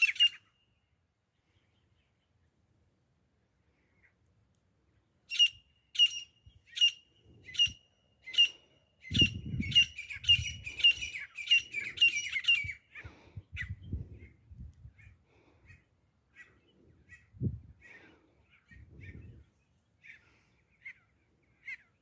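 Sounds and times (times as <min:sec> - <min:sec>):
bird calling shrilly: 0:00.0 - 0:00.8, 0:05.3 - 0:13.8, 0:15.0 - 0:19.2, 0:20.0 - 0:22.0.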